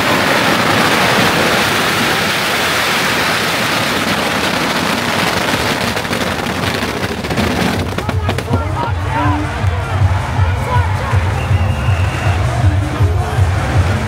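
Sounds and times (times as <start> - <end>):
firecrackers crackling: 0.0 - 10.3.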